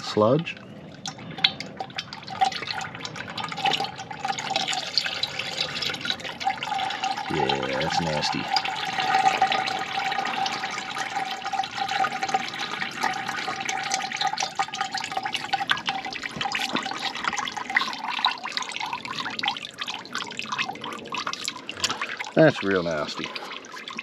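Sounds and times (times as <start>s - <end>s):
oil splashing and dripping: 0.0s - 24.0s
oil pouring into plastic bucket: 1.4s - 24.0s.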